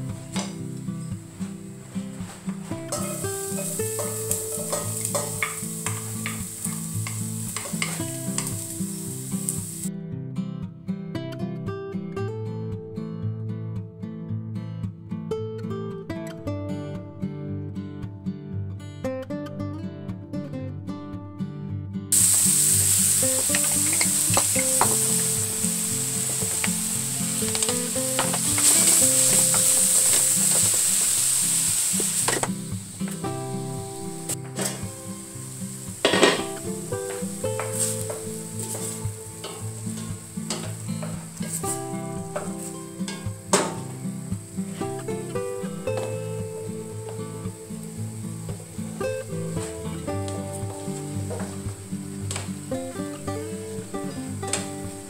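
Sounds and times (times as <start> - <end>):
garlic sizzling in hot oil: 0.0 - 9.9, 22.1 - 55.0
wooden spatula scraping a pan: 37.1 - 43.2.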